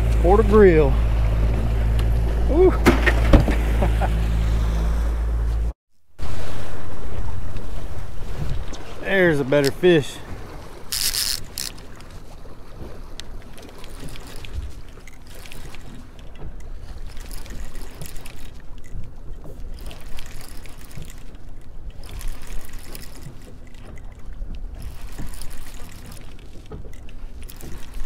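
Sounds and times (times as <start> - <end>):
water rushing and splashing: 0.0 - 5.4, 6.2 - 28.0
low steady engine rumble: 0.0 - 28.0
wind buffeting microphone: 6.2 - 15.2.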